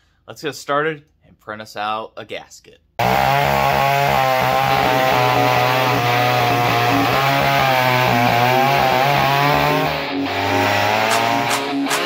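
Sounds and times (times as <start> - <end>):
chainsaw cutting log: 3.0 - 12.0.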